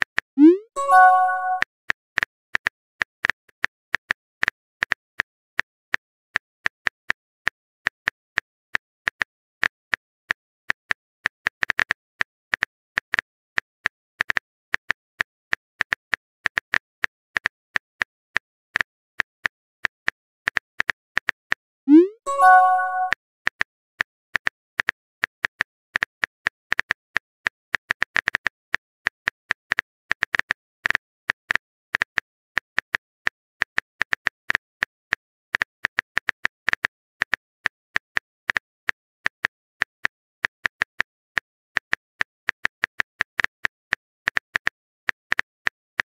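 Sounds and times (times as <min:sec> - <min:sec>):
short chime: 0:00.8 - 0:01.6, 0:22.3 - 0:23.1.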